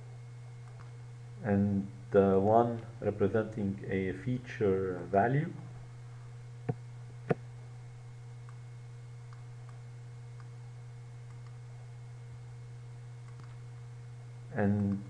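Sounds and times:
electrical hum: 0:00.0 - 0:15.0
faint typing ticks: 0:00.6 - 0:01.0, 0:13.2 - 0:13.6, 0:14.7 - 0:15.0
computer input clicks: 0:13.2 - 0:13.6, 0:14.7 - 0:15.0.

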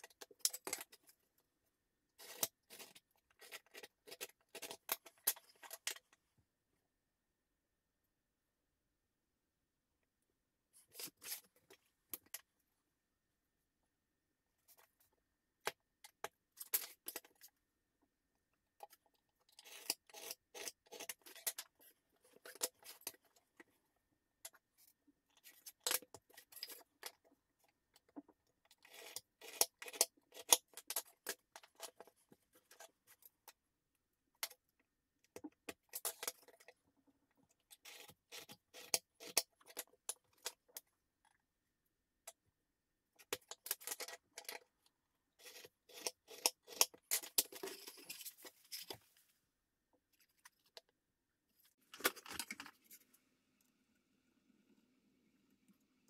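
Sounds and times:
pencil scratching on wood: 0:45.4 - 0:48.9.

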